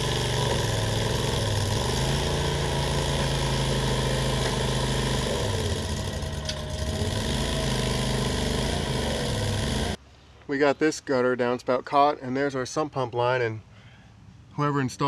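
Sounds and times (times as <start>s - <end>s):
trencher engine running under load: 0.0s - 10.0s.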